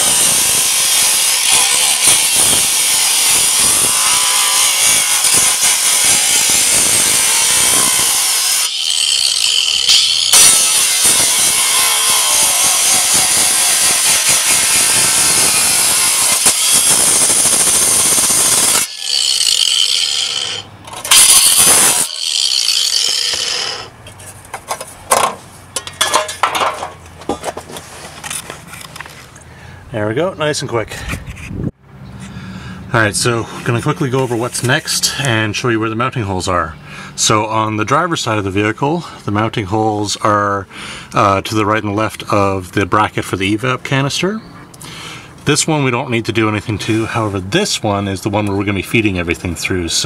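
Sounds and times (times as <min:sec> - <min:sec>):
angle grinder cutting metal: 0:00.0 - 0:23.9
grinder whine: 0:00.0 - 0:23.9
clicks and knocks of grinder set down: 0:24.6 - 0:27.6.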